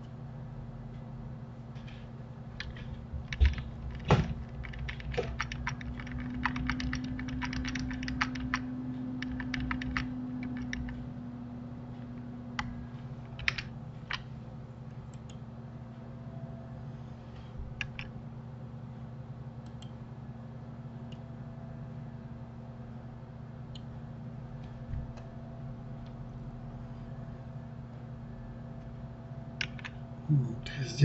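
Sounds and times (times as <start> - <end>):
steady low hum: 0.0 - 31.0
keyboard keys clacking: 2.6 - 11.1, 12.0 - 14.3.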